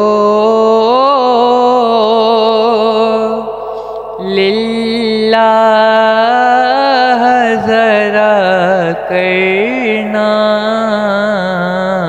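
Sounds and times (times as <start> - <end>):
man singing ornamented melody: 0.0 - 12.0.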